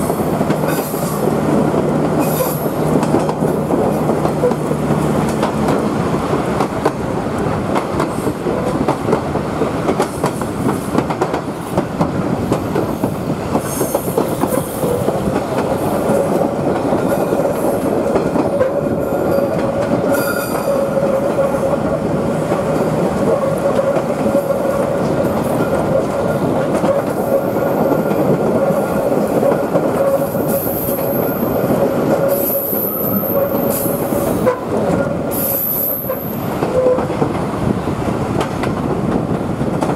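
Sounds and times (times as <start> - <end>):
rail motor rumble and rail clatter: 0.0 - 39.9
train wheels squealing: 2.2 - 2.9, 12.9 - 15.0, 19.0 - 21.7, 30.0 - 37.1.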